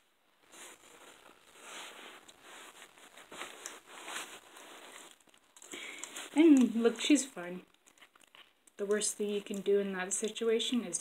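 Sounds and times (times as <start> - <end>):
kitten crunching bone: 7.7 - 8.7.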